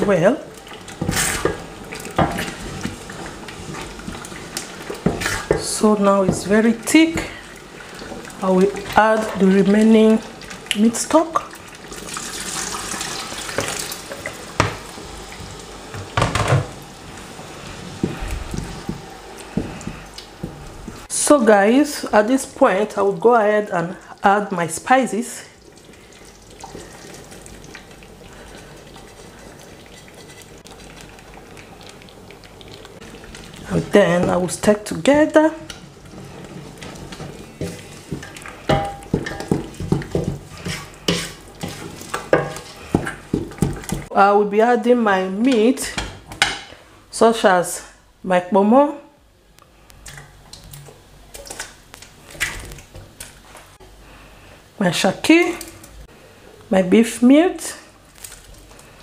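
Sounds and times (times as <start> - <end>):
liquid pouring into a pot: 11.5 - 14.3
wooden spoon scraping a pot: 28.3 - 31.0, 33.1 - 44.1.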